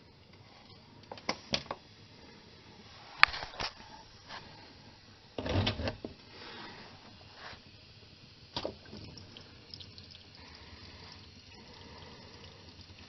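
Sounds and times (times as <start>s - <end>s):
fluid trickling and dripping: 8.4s - 13.0s.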